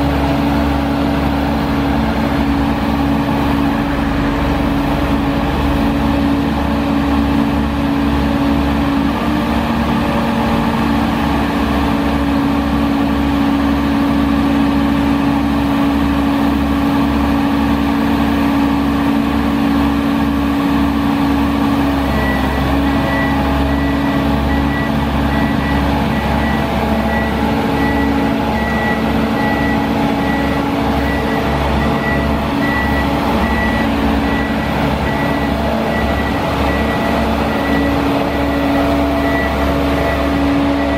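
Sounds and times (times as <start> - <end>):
diesel engine running: 0.0 - 40.9
travel alarm beeping: 22.1 - 40.9.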